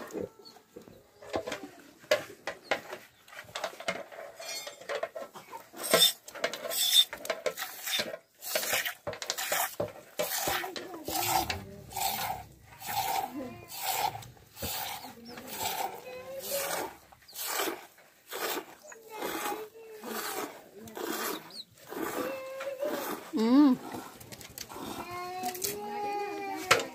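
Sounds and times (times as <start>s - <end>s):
milk squirting into metal cup: 6.8s - 25.7s.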